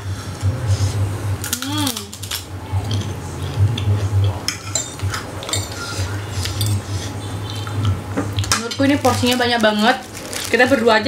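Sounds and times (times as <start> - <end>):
low uneven hum: 0.0 - 11.0
people chewing: 0.7 - 10.8
forks clinking on a plate: 4.5 - 6.8.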